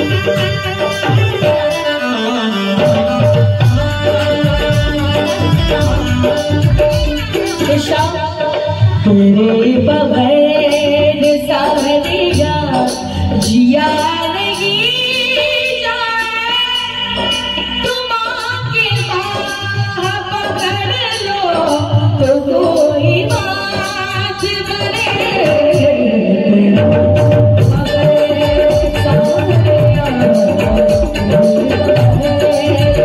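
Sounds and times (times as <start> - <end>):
drum beats: 0.0 - 33.0
woman singing devotional song: 0.0 - 33.0
jingling percussion: 2.8 - 8.8, 26.9 - 33.0.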